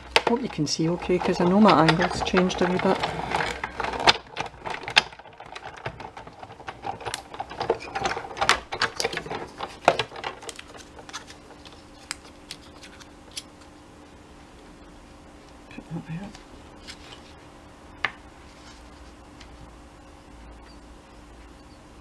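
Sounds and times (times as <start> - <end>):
paper and craft tools handled: 0.0 - 13.5
faint steady hum: 0.0 - 22.0.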